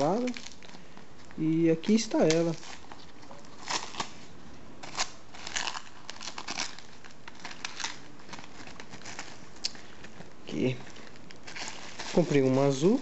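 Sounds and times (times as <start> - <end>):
paper crinkling and tearing: 0.0 - 13.0.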